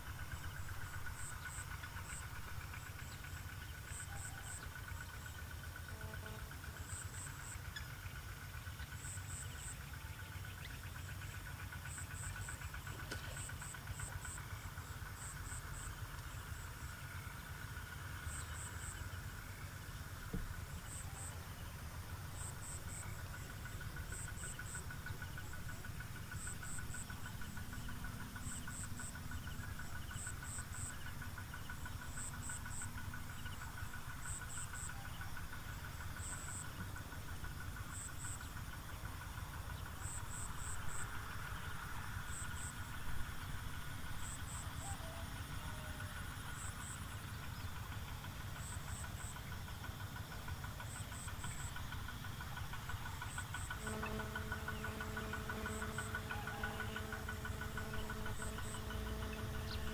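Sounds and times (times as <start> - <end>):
high insect chirps: 0.0 - 59.9
insects trilling: 0.0 - 59.9
low steady rumble: 0.0 - 59.9.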